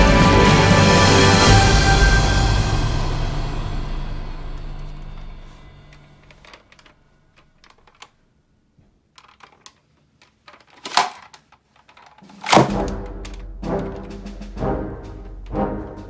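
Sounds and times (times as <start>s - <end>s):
orchestral music with timpani: 0.0s - 5.8s, 12.4s - 16.0s
plastic toy clicks and knocks: 6.2s - 8.2s, 9.2s - 13.4s.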